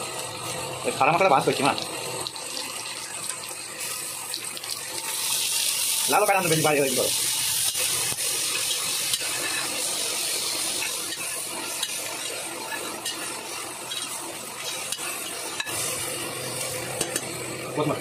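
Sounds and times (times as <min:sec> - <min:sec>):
onions sizzling in hot oil: 0:00.0 - 0:18.0
metal spatula scraping pot: 0:09.1 - 0:09.8, 0:10.8 - 0:15.8.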